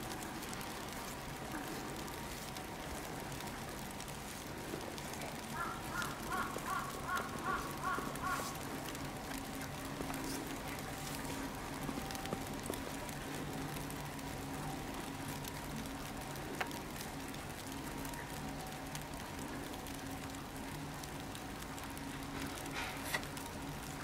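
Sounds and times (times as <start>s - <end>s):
bird calling: 5.6s - 8.6s.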